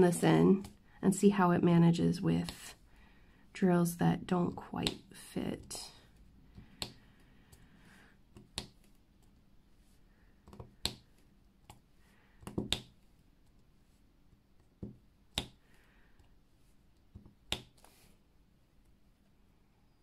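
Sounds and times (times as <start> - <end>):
pen tip clicks and taps: 12.4 - 12.9.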